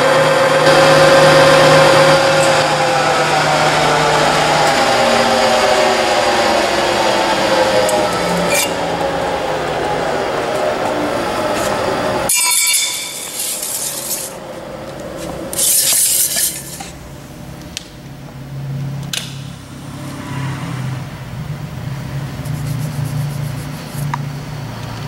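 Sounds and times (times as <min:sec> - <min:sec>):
low machine hum: 0:00.0 - 0:25.0
grinder hissing: 0:11.6 - 0:14.4, 0:15.2 - 0:17.0.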